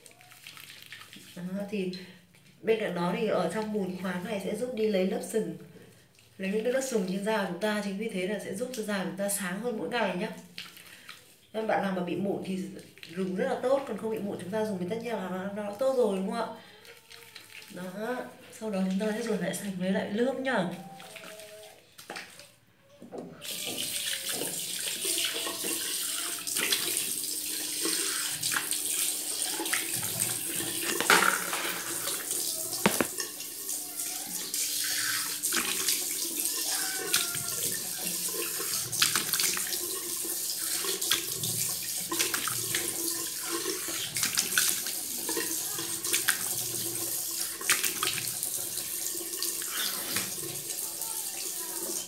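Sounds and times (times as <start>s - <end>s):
splashing water on face: 0.0s - 1.4s, 23.5s - 52.0s
tap water running into sink: 23.4s - 52.0s.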